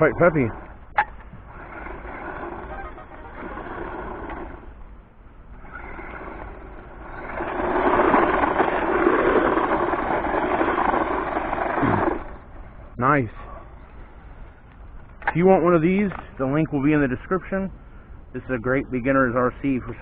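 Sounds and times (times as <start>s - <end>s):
electric motor whirring: 1.4s - 4.8s, 5.5s - 12.5s.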